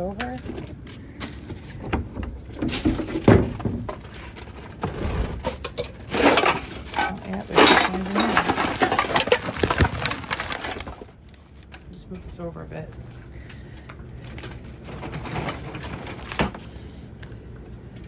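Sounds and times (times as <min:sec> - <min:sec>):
plastic garbage bag rustling: 0:00.4 - 0:11.8, 0:14.2 - 0:16.7
clinks and knocks of contents: 0:05.6 - 0:11.2.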